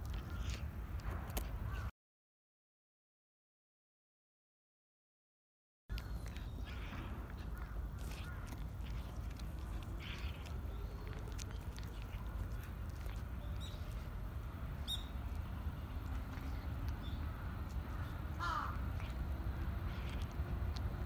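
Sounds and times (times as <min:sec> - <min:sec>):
cat crunching dry kibble: 0:00.0 - 0:01.8, 0:05.9 - 0:21.0
steady low rumble: 0:05.9 - 0:21.0
bird chirps: 0:14.8 - 0:15.2.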